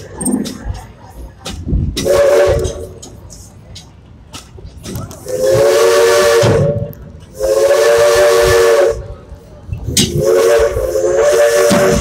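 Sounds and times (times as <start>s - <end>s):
steam locomotive whistle: 2.0s - 2.9s, 5.2s - 9.2s, 10.1s - 12.0s
steam hissing: 5.2s - 12.0s.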